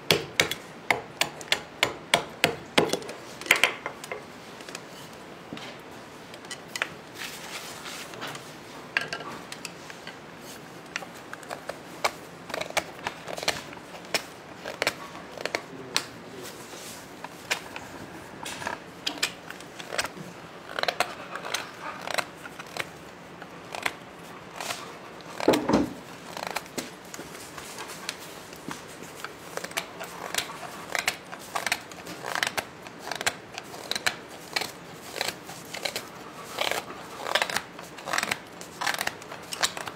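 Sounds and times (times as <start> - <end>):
knife shaving wood: 9.5 - 39.9.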